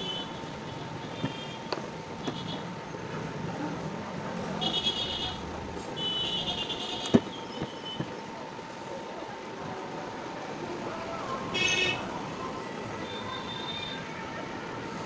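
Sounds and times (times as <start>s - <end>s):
vehicle horns honking: 0.0s - 2.7s, 4.6s - 8.0s, 11.6s - 12.1s
street traffic: 0.0s - 15.0s.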